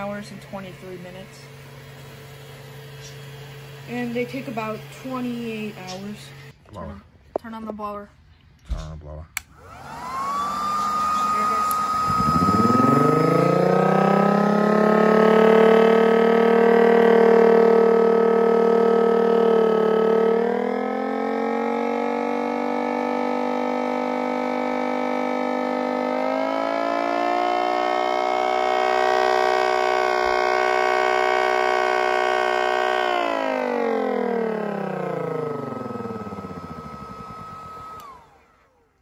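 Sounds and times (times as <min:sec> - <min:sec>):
siren wailing: 0:09.8 - 0:38.4.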